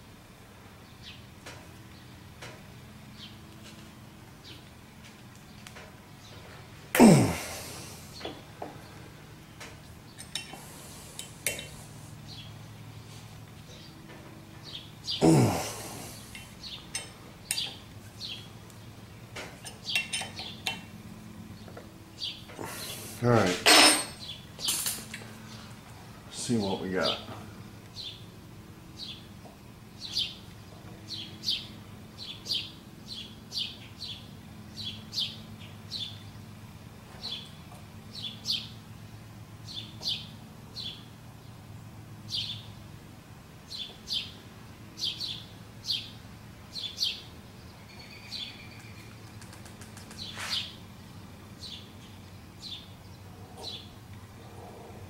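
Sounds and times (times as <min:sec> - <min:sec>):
steady low hum: 0:00.0 - 0:55.0
small bird chirping: 0:45.0 - 0:50.8.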